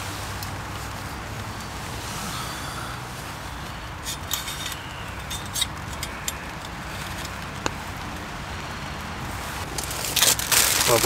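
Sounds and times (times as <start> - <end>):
background hiss: 0.0 - 11.0
sharp clicks and rustles: 3.6 - 8.7, 9.6 - 11.0.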